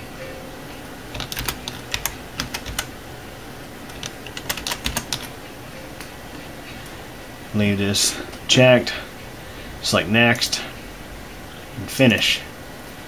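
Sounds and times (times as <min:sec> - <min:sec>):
computer keyboard keys clicking: 0:01.1 - 0:03.0, 0:03.9 - 0:05.3.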